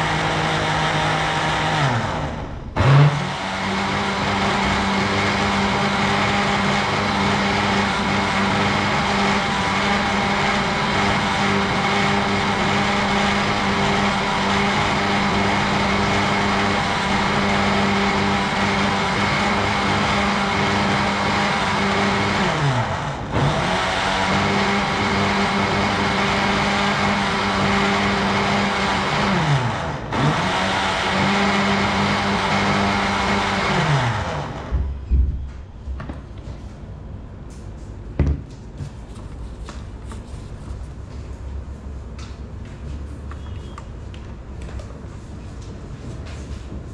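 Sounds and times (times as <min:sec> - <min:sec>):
blender motor running: 0:00.0 - 0:34.7.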